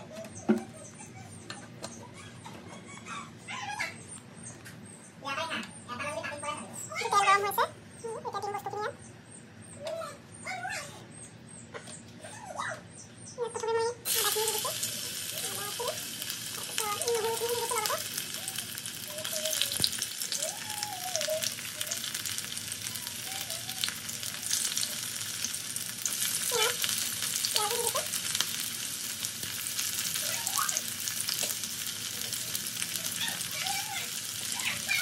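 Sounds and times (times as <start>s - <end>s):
onion and garlic sizzling in oil: 14.0s - 35.0s.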